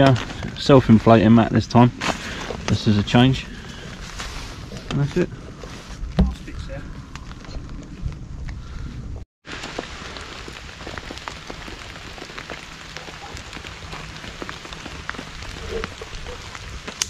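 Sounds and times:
rain falling: 9.4s - 17.0s
raindrops ticking: 9.5s - 17.0s.

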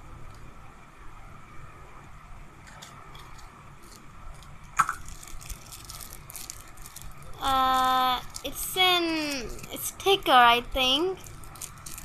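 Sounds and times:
plastic wrapper crinkling: 2.7s - 9.8s, 11.0s - 12.0s.

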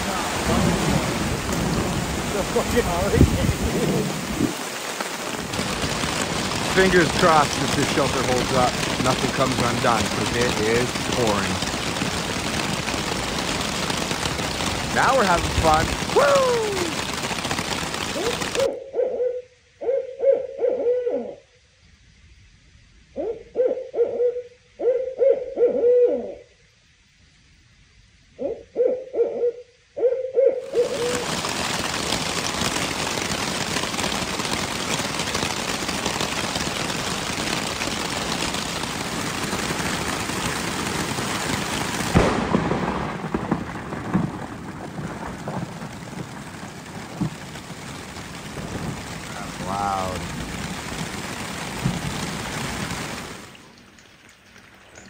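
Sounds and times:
thunder crack: 0.0s - 18.7s, 30.7s - 53.9s
heavy rain on tarp: 0.0s - 18.8s, 30.6s - 55.0s
owl hooting: 18.1s - 21.4s, 23.2s - 26.5s, 28.4s - 31.3s.

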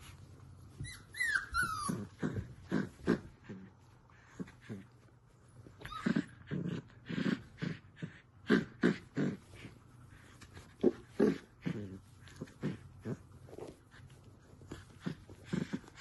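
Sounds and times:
puppy whining: 0.6s - 3.2s, 5.6s - 7.0s
puppy growling: 0.8s - 16.0s.

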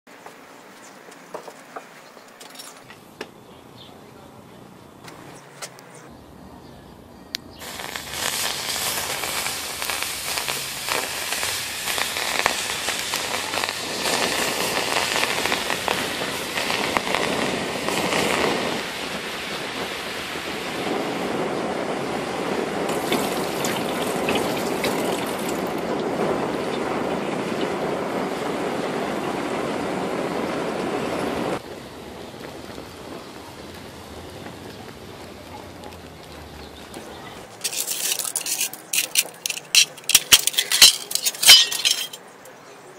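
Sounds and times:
gummy bears sizzling and crackling: 7.6s - 21.1s, 22.8s - 26.1s, 37.5s - 42.2s.

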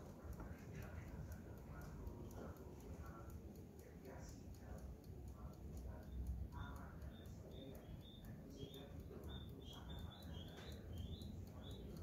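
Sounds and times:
alarm clock ticking: 0.0s - 12.0s
bird chirps: 7.1s - 12.0s.

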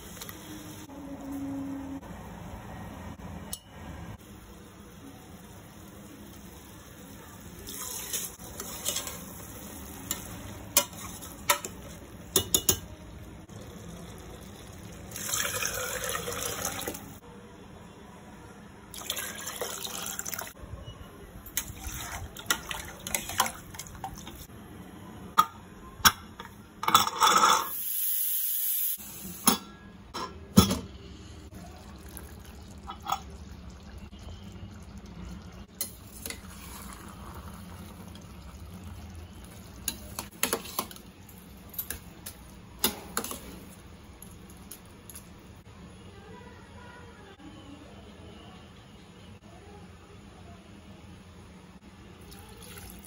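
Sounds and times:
pots and utensils clinking: 7.7s - 13.0s, 25.4s - 27.8s, 29.4s - 30.9s, 32.7s - 33.6s, 35.7s - 38.4s, 39.8s - 43.8s
water pouring: 13.5s - 17.2s, 19.0s - 20.6s, 21.6s - 24.4s, 31.5s - 41.0s, 52.3s - 53.0s.

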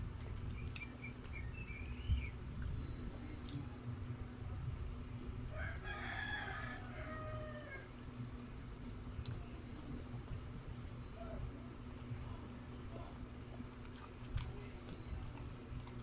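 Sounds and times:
steady low hum: 0.0s - 16.0s
rooster crowing: 5.5s - 7.9s.

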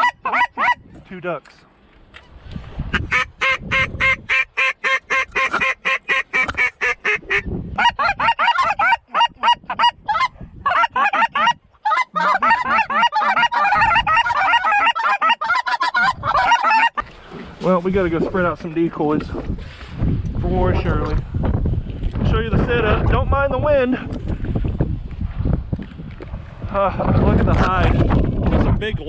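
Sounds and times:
duck call quacks and clucks: 0.0s - 0.8s, 2.9s - 17.0s.

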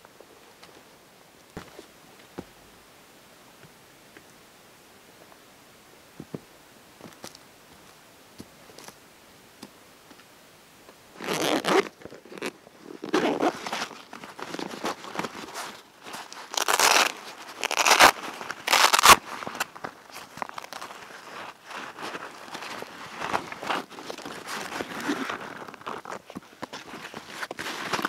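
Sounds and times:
zipper being pulled open: 11.2s - 19.2s, 23.1s - 26.2s
fabric rustling: 11.2s - 28.0s.

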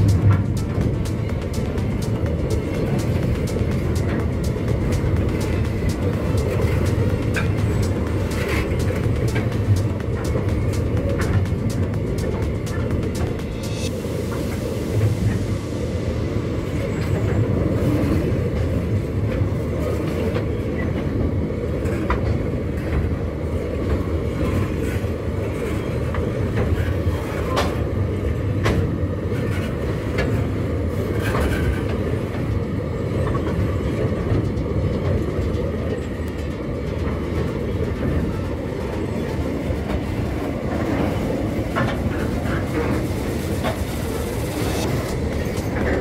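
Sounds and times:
sharp clicks and clanks: 0.0s - 13.9s
steel wheels rumbling on rails: 0.0s - 46.0s.

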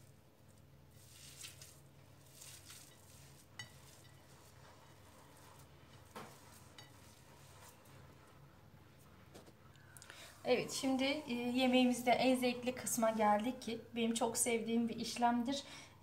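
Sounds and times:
hands squishing minced meat: 0.9s - 8.4s.

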